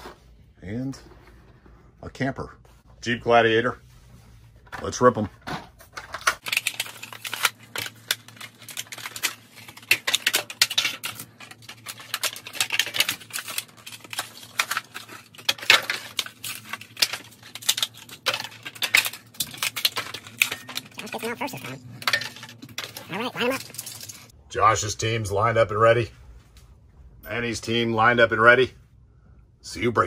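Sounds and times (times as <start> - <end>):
plastic packaging ripping: 6.4 - 21.6.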